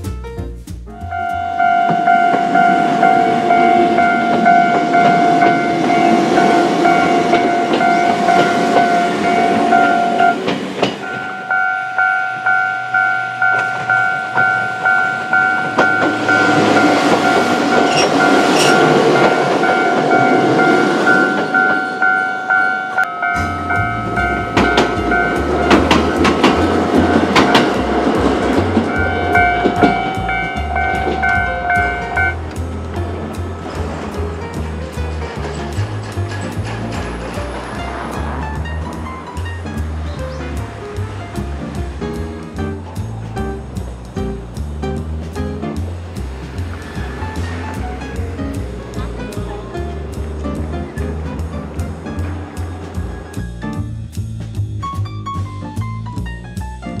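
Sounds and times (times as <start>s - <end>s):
level-crossing bell clanging: 0.9s - 53.9s
train wheels clattering: 1.2s - 56.8s
low rumble: 23.0s - 54.8s.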